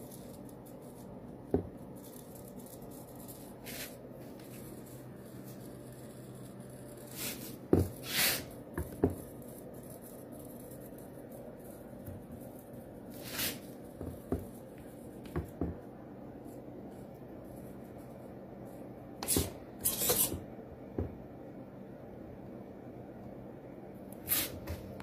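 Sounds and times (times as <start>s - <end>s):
short hissing swishes: 7.1s - 8.5s, 13.2s - 13.6s, 24.3s - 24.7s.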